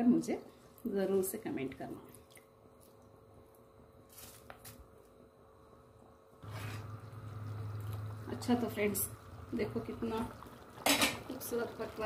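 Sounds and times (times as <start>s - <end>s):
steady low hum: 4.8s - 12.0s
water bubbling in pot: 6.4s - 12.0s.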